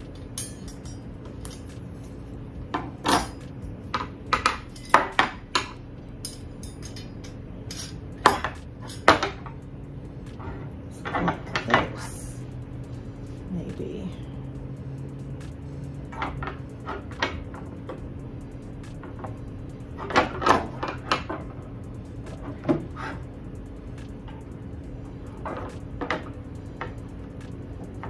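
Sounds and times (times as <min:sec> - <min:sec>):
metal wire pieces clinking: 0:00.0 - 0:13.5
steady low hum: 0:00.0 - 0:28.0.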